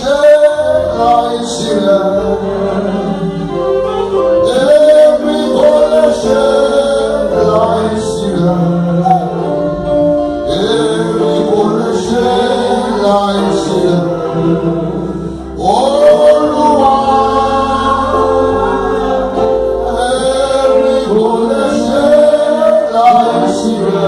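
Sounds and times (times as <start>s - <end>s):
group singing gospel song: 0.0s - 24.0s.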